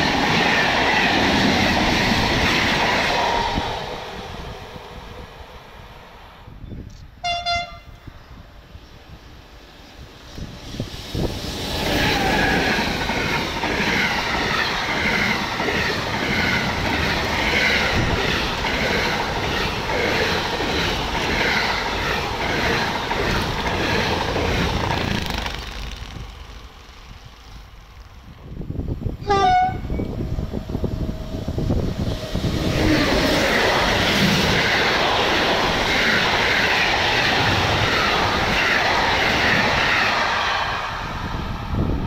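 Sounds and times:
locomotive horn: 7.2s - 8.1s, 29.2s - 30.1s
train wheels clacking on rails: 10.4s - 26.7s.

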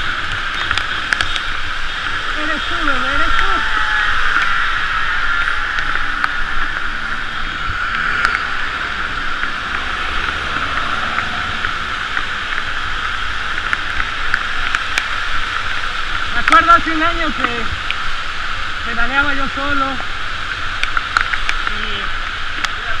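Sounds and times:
low rumble: 0.0s - 17.8s
bicycle tyres hissing on wet street: 0.0s - 23.0s.

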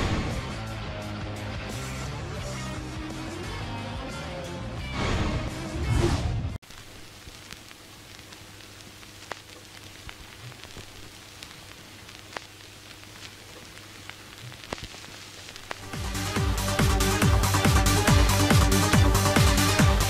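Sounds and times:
crackling clicks: 6.6s - 20.0s
steady hiss: 6.6s - 20.0s.

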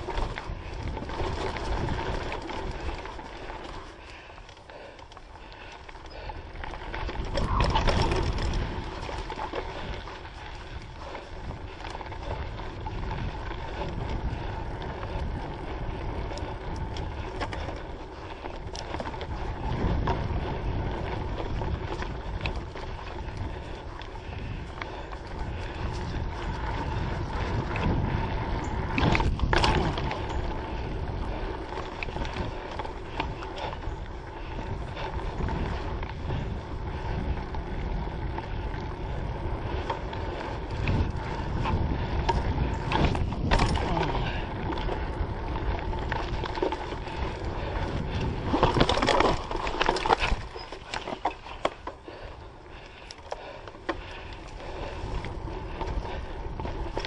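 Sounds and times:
bike rumbling and rattling on trail: 0.0s - 57.0s
bike clattering knocks over bumps: 42.1s - 44.5s.

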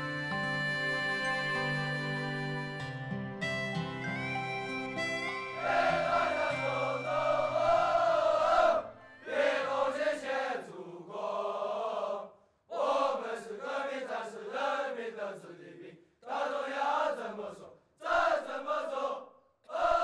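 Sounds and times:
men singing in unison: 5.6s - 20.0s.

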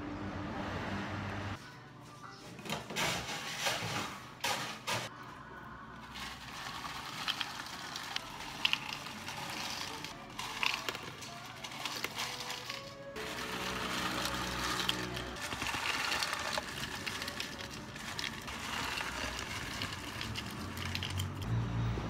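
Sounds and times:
ice clinking into cups: 6.1s - 21.5s
ice rattling in plastic scoop: 6.1s - 21.5s.

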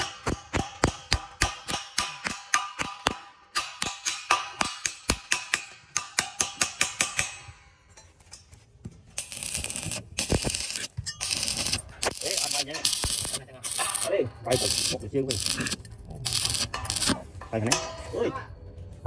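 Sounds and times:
hammer tapping on steel: 0.0s - 8.4s
welding arc crackling and hissing: 9.1s - 17.2s.

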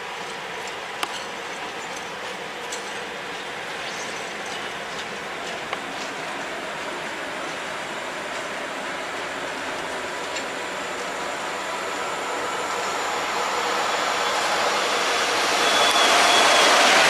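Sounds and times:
train wheels on rails: 0.0s - 17.0s.

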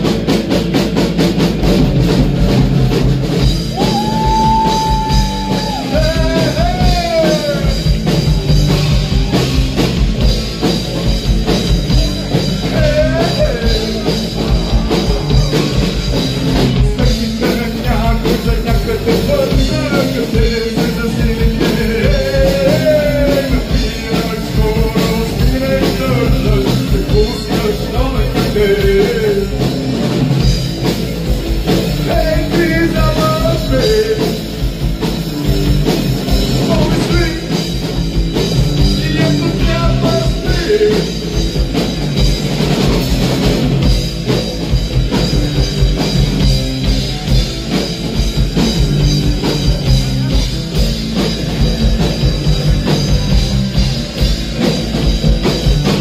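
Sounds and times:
drum kit: 0.0s - 56.0s
electric guitars: 0.0s - 56.0s
person singing: 3.8s - 9.6s, 11.9s - 29.7s, 31.9s - 34.4s, 38.8s - 41.3s.

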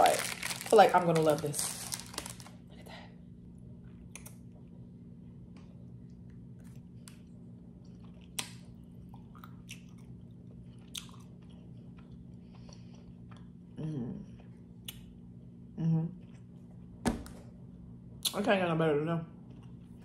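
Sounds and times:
faint steady hum: 0.0s - 20.0s
quiet chewing: 5.5s - 13.6s, 16.2s - 16.9s.

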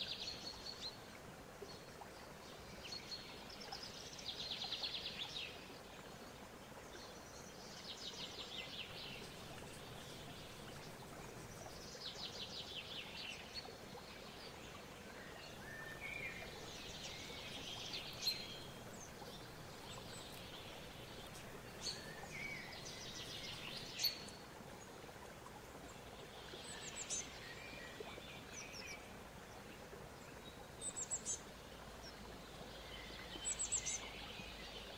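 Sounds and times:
background hiss: 0.0s - 34.9s
faint trilled bird song: 7.0s - 24.4s, 30.3s - 34.9s.

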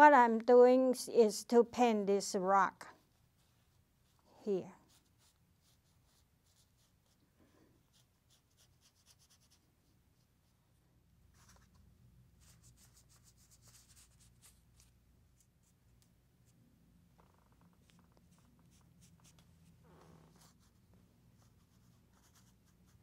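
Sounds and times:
dry brush scratching on paper: 3.0s - 7.2s, 7.8s - 10.3s, 12.4s - 15.8s, 17.8s - 23.0s.

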